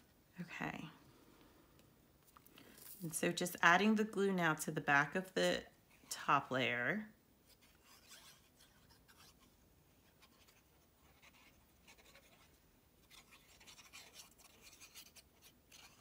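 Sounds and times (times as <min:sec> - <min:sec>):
glue applicator scratching cardstock: 0:10.2 - 0:16.0.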